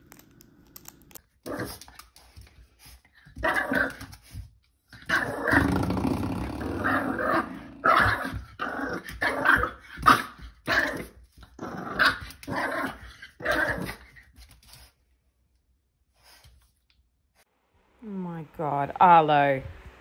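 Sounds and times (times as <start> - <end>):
dog growling: 5.0 - 9.8.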